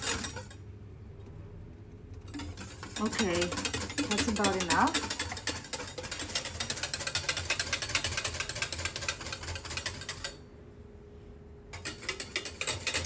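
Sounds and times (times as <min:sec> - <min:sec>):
whisk rattling against saucepan: 0:00.0 - 0:00.6, 0:02.3 - 0:10.4, 0:11.8 - 0:13.0.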